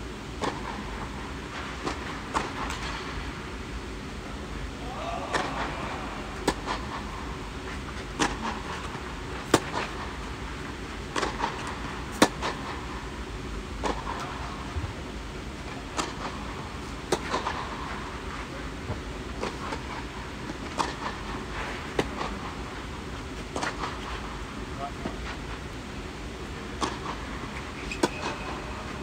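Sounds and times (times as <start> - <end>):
racket hitting tennis ball: 5.3 - 7.1, 7.7 - 10.1, 11.1 - 12.8, 17.0 - 17.7, 26.8 - 27.2, 27.9 - 28.5.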